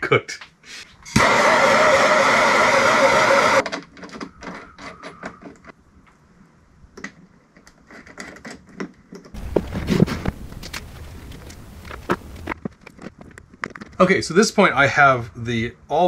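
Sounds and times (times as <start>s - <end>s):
propane torch hissing: 1.2s - 3.6s
battery cables clicking and knocking: 7.0s - 14.0s.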